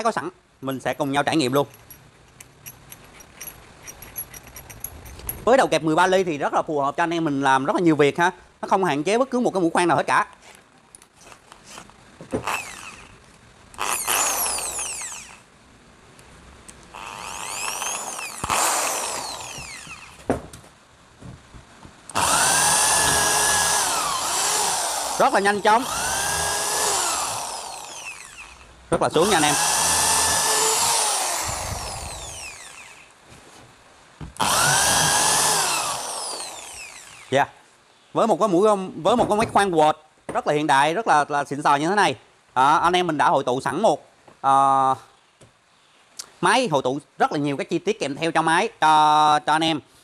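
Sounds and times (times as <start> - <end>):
drill motor whining: 12.4 - 13.1, 13.8 - 15.4, 16.9 - 20.2, 22.1 - 33.1, 34.4 - 37.4.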